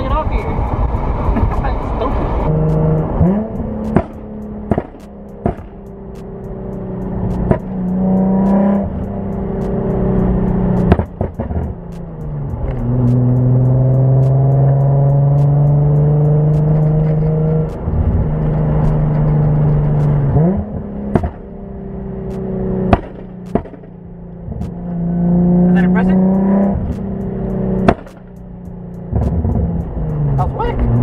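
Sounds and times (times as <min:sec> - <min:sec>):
exhaust cracks: 0:00.0 - 0:31.0
car engine revving from inside: 0:01.8 - 0:05.8, 0:12.4 - 0:21.4, 0:24.4 - 0:28.2.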